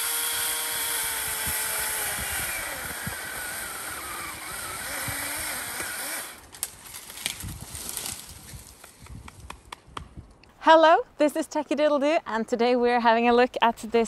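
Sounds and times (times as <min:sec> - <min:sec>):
electric chainsaw motor whine: 0:00.0 - 0:06.4.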